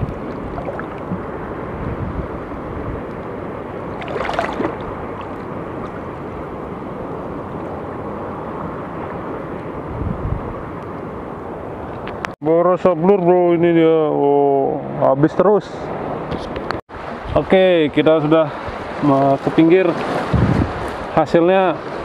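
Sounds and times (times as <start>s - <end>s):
shallow sea water washing: 0.0s - 9.6s, 18.4s - 22.0s
wind buffeting microphone: 0.0s - 12.3s, 20.1s - 21.1s.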